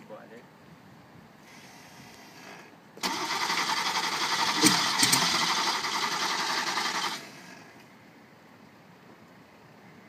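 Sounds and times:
car starter cranking engine: 0:03.0 - 0:07.7.

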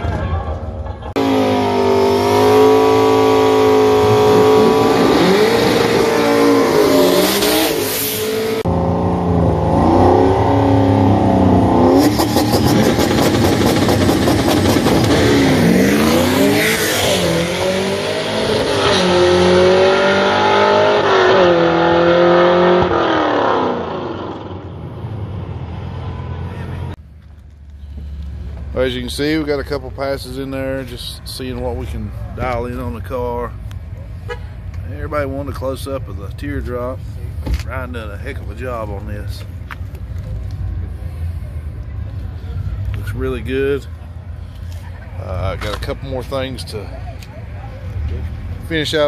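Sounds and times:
car accelerating through gears: 0:01.2 - 0:24.7
car engine revving: 0:01.2 - 0:27.0.

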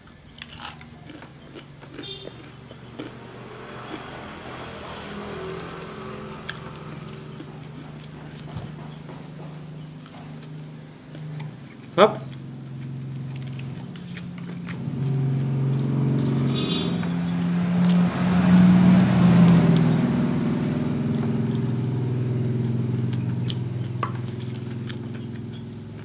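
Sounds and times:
motor vehicle engine running: 0:00.0 - 0:26.0.

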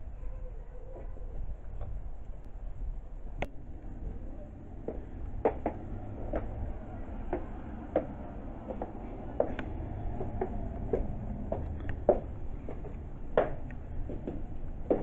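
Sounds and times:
low room rumble: 0:00.0 - 0:15.0
high heels clicking on hard floor: 0:07.3 - 0:15.0.

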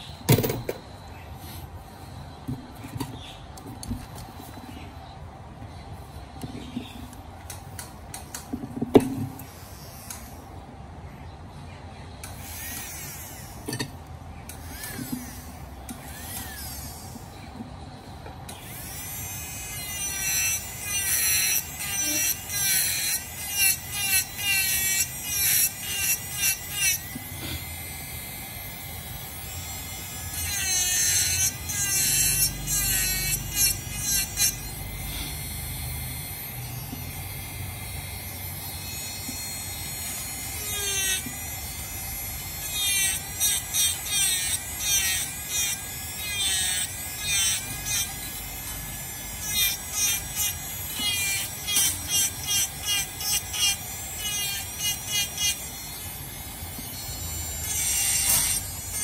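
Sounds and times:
rotary tool carving wood: 0:12.2 - 0:59.0.

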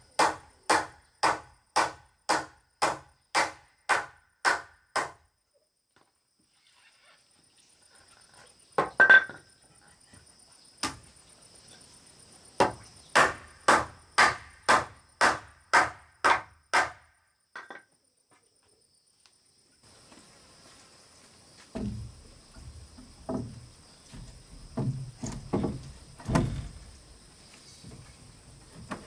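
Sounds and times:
hammer blows on wooden beam: 0:00.2 - 0:05.2, 0:12.6 - 0:17.1.

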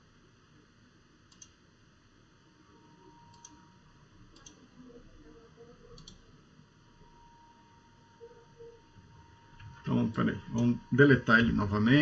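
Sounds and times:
computer mouse clicks: 0:01.3 - 0:01.6, 0:03.2 - 0:03.6, 0:04.3 - 0:04.6, 0:06.0 - 0:06.2.

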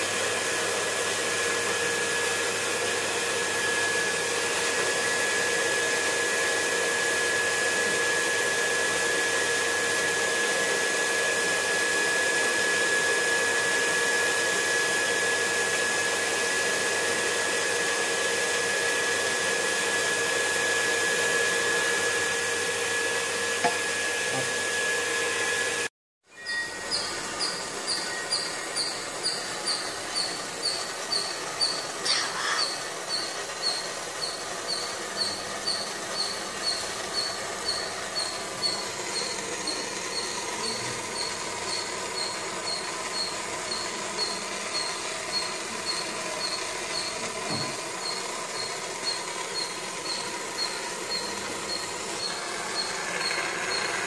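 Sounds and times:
gas torch hissing: 0:26.7 - 0:54.0.

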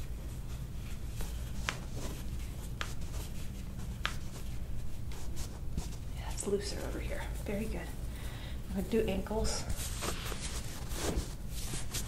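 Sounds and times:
paper towel rustling: 0:00.0 - 0:07.7, 0:09.4 - 0:12.0.

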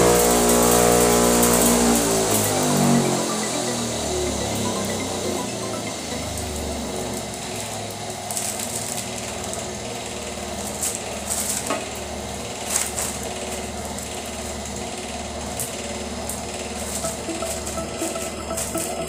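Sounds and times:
cotton candy machine motor humming: 0:00.0 - 0:19.0.

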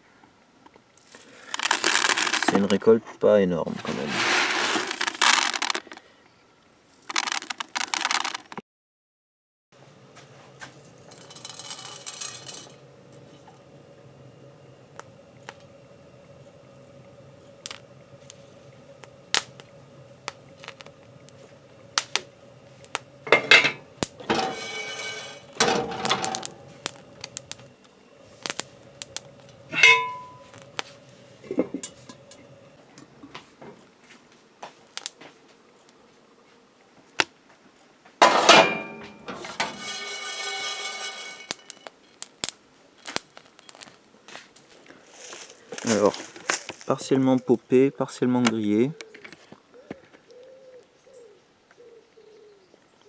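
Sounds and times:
grains popping in a hot skillet: 0:01.0 - 0:02.9, 0:04.2 - 0:06.0, 0:07.0 - 0:08.6, 0:10.2 - 0:33.5, 0:34.6 - 0:36.0, 0:38.2 - 0:46.9
grains rattling across iron pan: 0:01.0 - 0:02.9, 0:03.7 - 0:06.0, 0:07.0 - 0:08.6, 0:10.3 - 0:32.7, 0:38.2 - 0:44.0.

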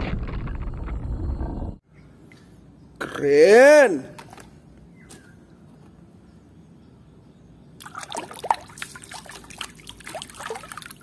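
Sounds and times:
water sloshing and splashing: 0:07.8 - 0:11.0.

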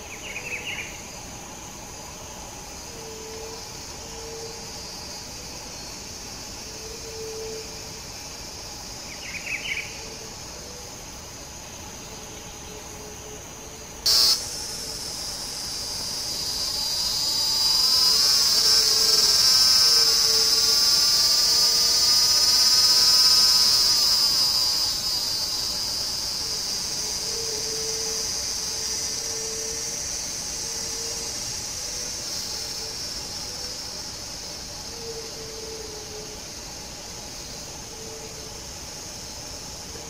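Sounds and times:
high insect buzz: 0:00.0 - 0:40.0
sharp click: 0:14.1 - 0:14.7.

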